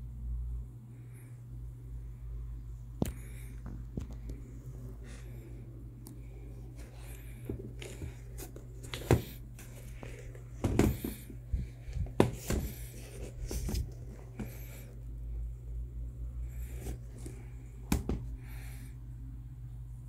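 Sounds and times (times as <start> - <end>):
steady low hum: 0.0 - 20.0
sneaker handling rustles: 6.7 - 14.7.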